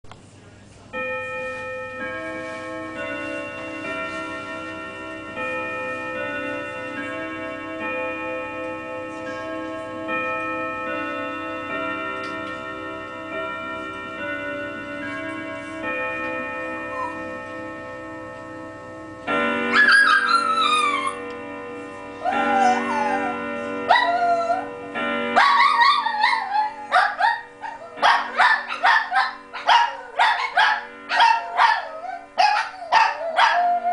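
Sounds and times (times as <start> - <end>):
grandfather clock chime melody: 0.9 - 33.9
dog howling: 19.8 - 21.2, 22.2 - 24.7, 25.4 - 33.9.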